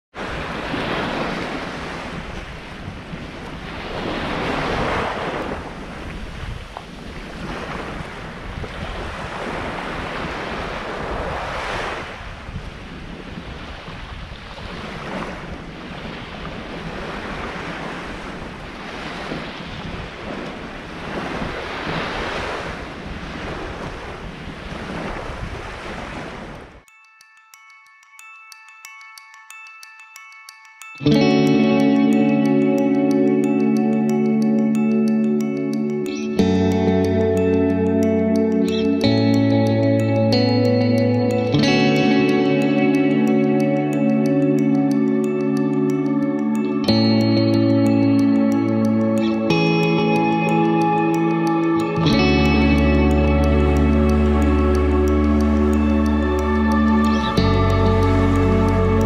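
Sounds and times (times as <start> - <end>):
small waves washing onto sand: 0.2 - 26.8
wind rumbling on microphone: 0.2 - 26.8, 51.8 - 59.0.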